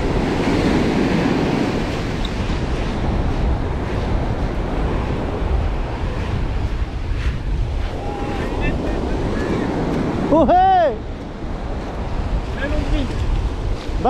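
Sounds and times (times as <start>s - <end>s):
foam washing over sand: 0.0s - 10.9s
wave breaking: 0.0s - 14.0s
wind buffeting microphone: 0.0s - 14.0s.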